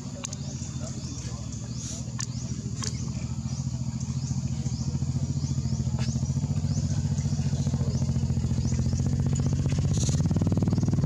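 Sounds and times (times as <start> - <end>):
motor engine running: 0.0 - 11.0.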